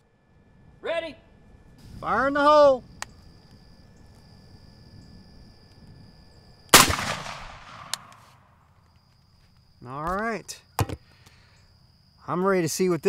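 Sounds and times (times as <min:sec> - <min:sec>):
shotgun shot: 0:06.7 - 0:08.4.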